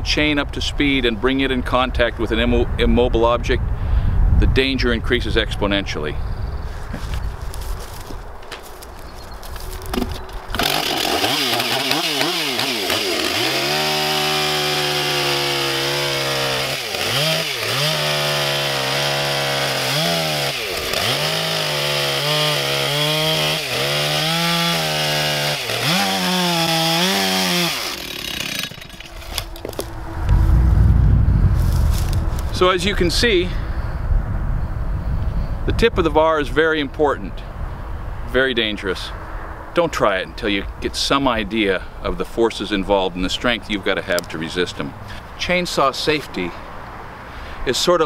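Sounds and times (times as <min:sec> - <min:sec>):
chainsaw cutting log: 0:08.8 - 0:30.0.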